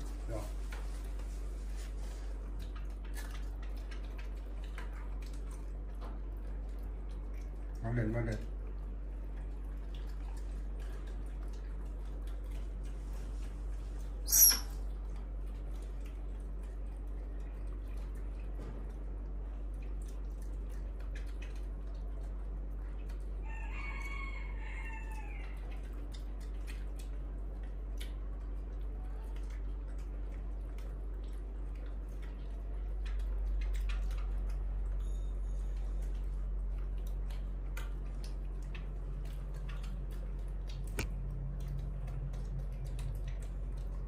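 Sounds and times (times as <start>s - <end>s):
steady low hum: 0.0s - 23.5s, 25.3s - 44.0s.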